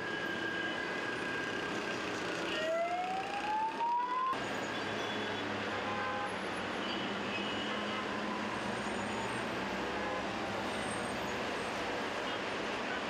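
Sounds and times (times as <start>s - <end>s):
street traffic: 0.0s - 13.0s
siren rising in pitch: 2.5s - 4.4s.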